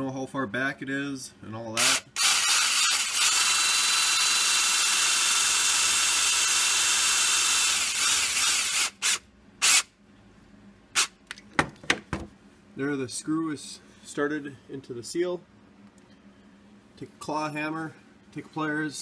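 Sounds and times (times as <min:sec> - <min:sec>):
drill driving a screw: 0:01.8 - 0:09.9.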